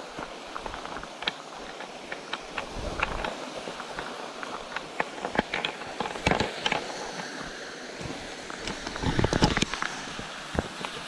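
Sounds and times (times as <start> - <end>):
footsteps crunching on gravel: 0.0 - 6.2
waterfall rushing: 0.0 - 11.0.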